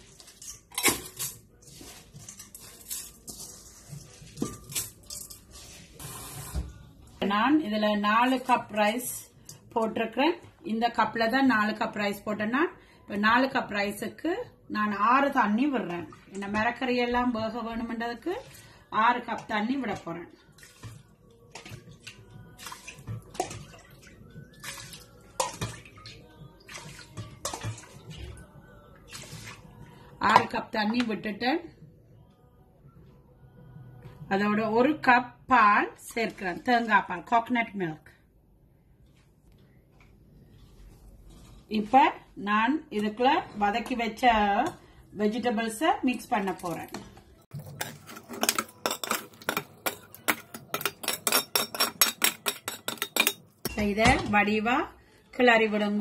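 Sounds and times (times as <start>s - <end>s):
metal bowl clinking on pot: 4.3s - 5.4s, 46.6s - 54.4s.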